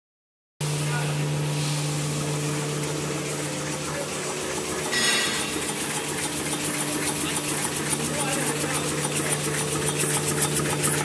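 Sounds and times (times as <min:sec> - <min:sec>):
tissue machine humming: 0:00.6 - 0:11.0
fast mechanical ticking: 0:02.2 - 0:11.0.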